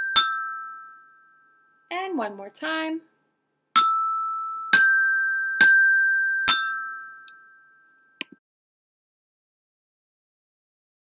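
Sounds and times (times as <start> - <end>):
resonator bells ringing: 3.8 - 7.8.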